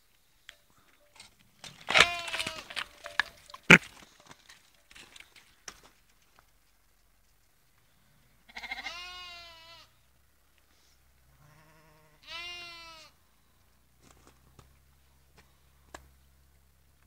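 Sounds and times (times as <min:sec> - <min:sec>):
lamb bleating: 0:01.9 - 0:02.8, 0:08.5 - 0:09.9, 0:11.4 - 0:13.1.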